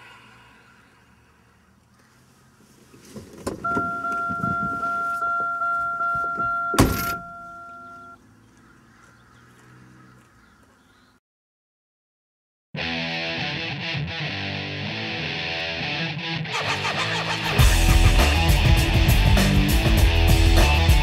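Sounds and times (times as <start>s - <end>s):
rustling and shuffling: 1.8s - 7.1s
car warning chime dinging: 3.6s - 8.2s.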